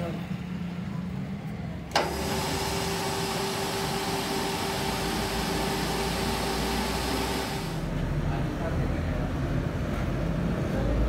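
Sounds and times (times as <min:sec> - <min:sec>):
lathe humming with held tone: 0:02.0 - 0:08.0.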